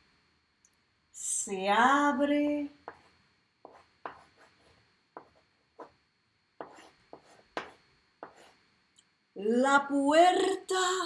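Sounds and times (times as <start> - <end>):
chalk on a chalkboard: 2.8 - 6.0, 6.6 - 8.6.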